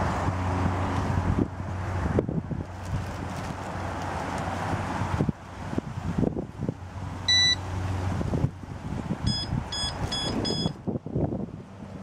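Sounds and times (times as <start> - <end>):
wind rumble on microphone: 0.0 - 12.0
electronic bite alarm beeping: 7.3 - 7.6, 9.3 - 10.8.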